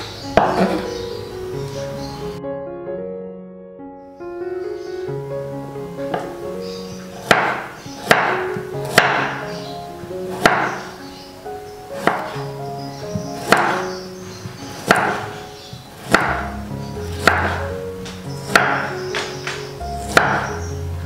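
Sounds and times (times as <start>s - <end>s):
background music: 0.0s - 21.0s
knife cutting on wooden board: 7.1s - 9.5s, 10.3s - 11.0s, 12.0s - 12.5s, 13.1s - 13.9s, 14.8s - 15.4s, 16.0s - 16.5s, 17.1s - 17.6s, 20.0s - 20.6s.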